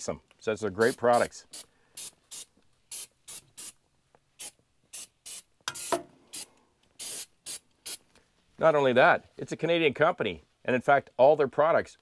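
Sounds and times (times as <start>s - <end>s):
aerosol can spraying in hissing bursts: 0.8s - 3.8s, 4.4s - 8.0s.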